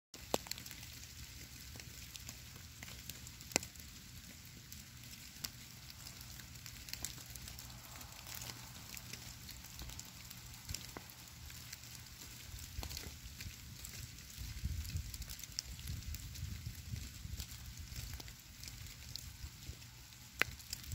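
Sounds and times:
snow crackling on stone and leaves: 0.2 - 20.9
low steady rumble: 2.6 - 20.9.

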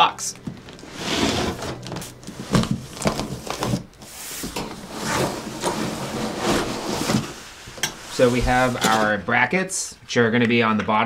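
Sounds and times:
cardboard scraping and rustling: 0.6 - 9.2.

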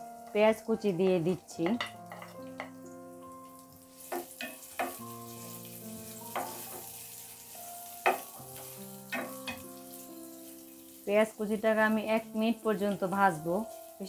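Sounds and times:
onion sizzling in oil: 0.0 - 14.0
soft background music: 0.0 - 14.0
spatula knocking against pan: 4.2 - 5.0, 6.4 - 6.9, 8.1 - 8.3, 9.1 - 9.6.

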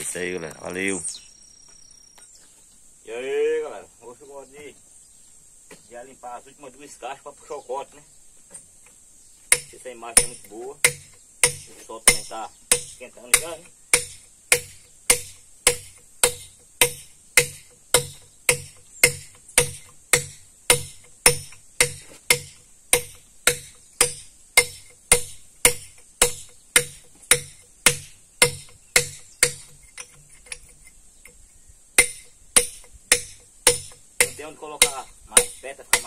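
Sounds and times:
hammer striking chisel into rock: 9.5 - 30.8, 32.0 - 36.0.

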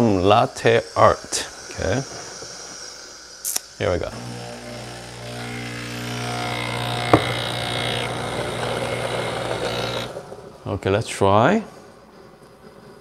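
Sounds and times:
water hissing: 0.0 - 10.7
espresso machine pump humming: 1.0 - 10.6.

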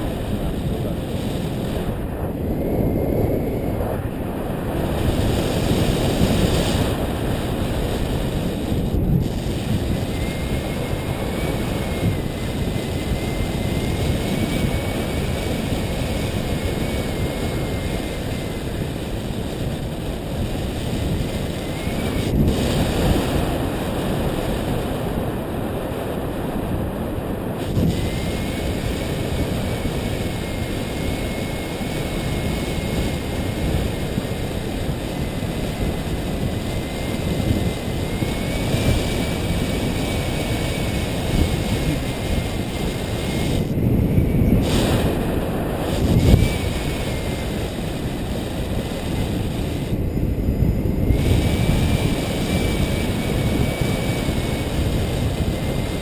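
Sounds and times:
wind noise on microphone: 0.0 - 56.0.

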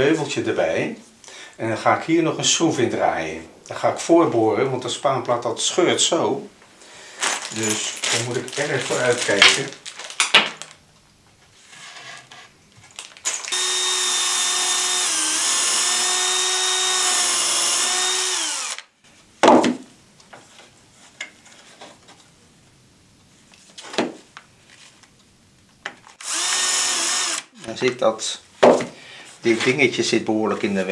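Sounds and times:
cordless drill drilling: 13.5 - 18.9, 26.2 - 27.8.

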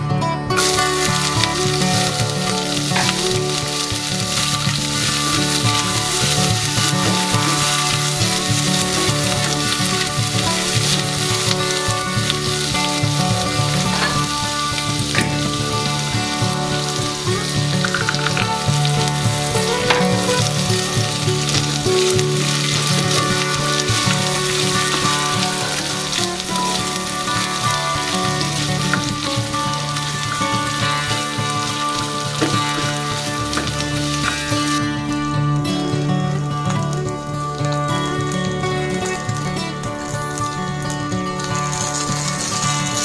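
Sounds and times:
food sizzling in oil: 0.5 - 43.0
spatula stirring in pan: 0.6 - 34.8.

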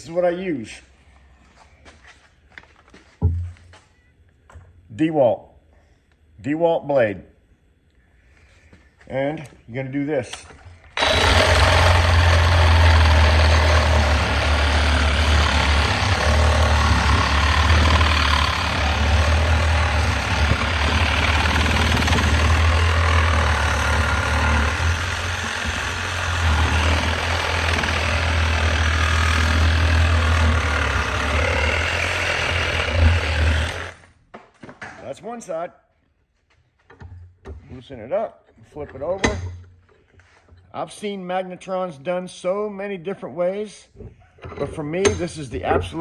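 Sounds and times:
reciprocating saw cutting metal: 11.0 - 34.1.

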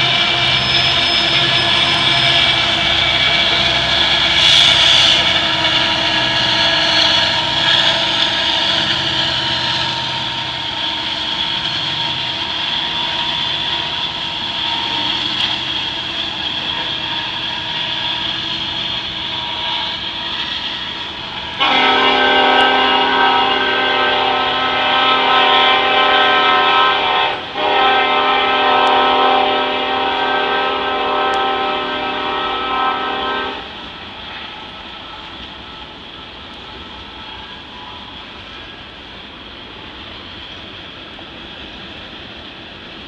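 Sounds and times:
freight train rumbling past: 0.0 - 43.0.

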